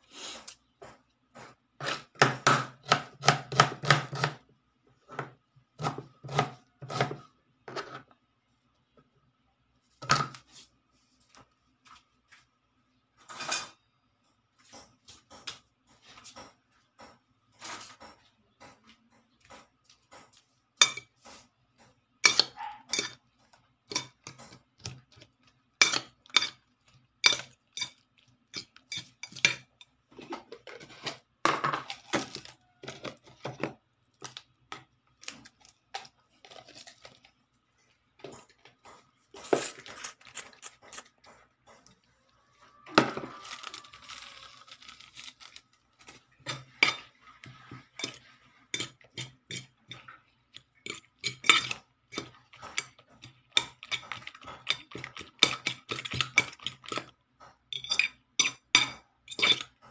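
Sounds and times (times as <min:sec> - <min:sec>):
utensil clinking against bowl: 0:48.8 - 0:59.9.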